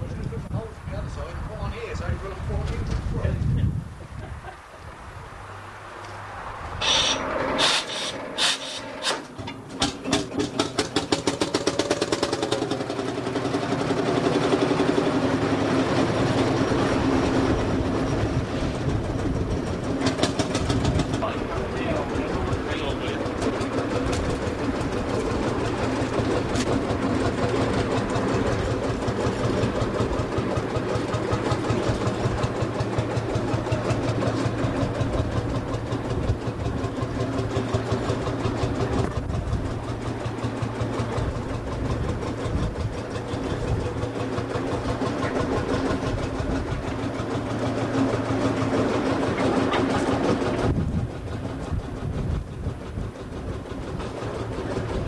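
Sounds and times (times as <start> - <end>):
tractor engine running: 4.9 - 55.0.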